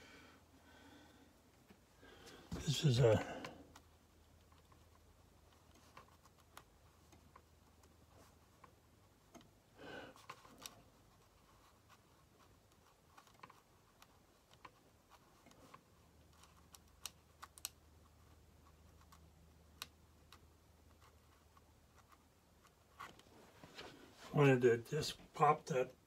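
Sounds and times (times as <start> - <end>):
soft rustle: 20.2 - 24.5.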